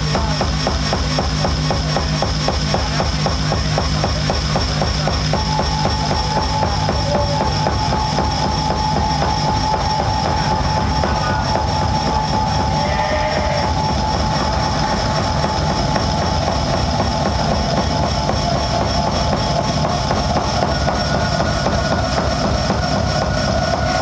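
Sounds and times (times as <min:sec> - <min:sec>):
rumbling low noise: 0:00.0 - 0:24.0
electronic drone tones: 0:05.3 - 0:24.0.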